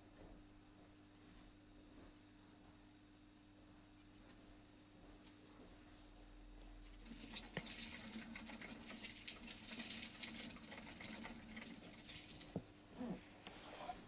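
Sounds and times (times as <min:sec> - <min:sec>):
exercise wheel whirring: 0:07.0 - 0:14.0.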